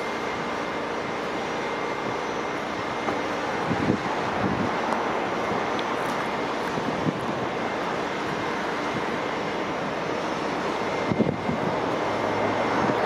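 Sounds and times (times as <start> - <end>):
wind on microphone: 3.6 - 4.9, 6.6 - 7.6, 11.0 - 13.0.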